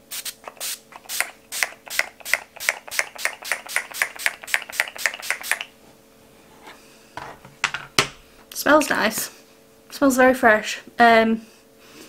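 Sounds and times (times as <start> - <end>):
spray bottle spritzing: 0.1 - 5.7.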